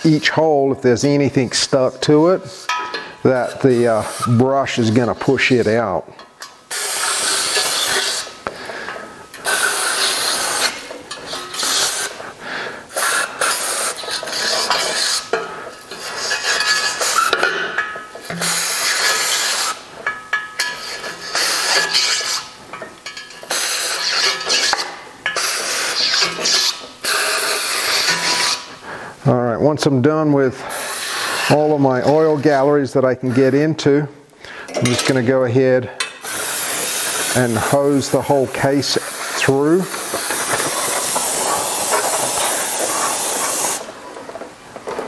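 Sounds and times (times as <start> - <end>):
bottle brush scrubbing metal holes: 0.0 - 5.8, 6.7 - 28.8, 30.6 - 33.7, 36.2 - 44.0
aerosol solvent spraying: 3.4 - 5.1, 6.7 - 8.5, 9.4 - 17.4, 18.2 - 19.9, 20.6 - 22.6, 23.4 - 28.8, 30.6 - 32.6, 36.2 - 43.9.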